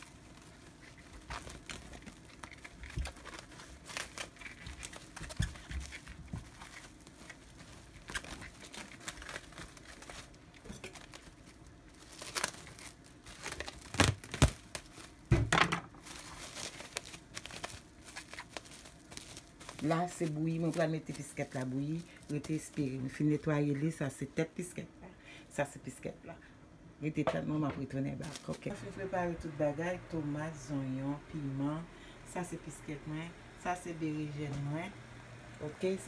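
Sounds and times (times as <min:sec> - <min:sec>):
cling film crinkling: 0:00.0 - 0:24.4, 0:28.2 - 0:29.0.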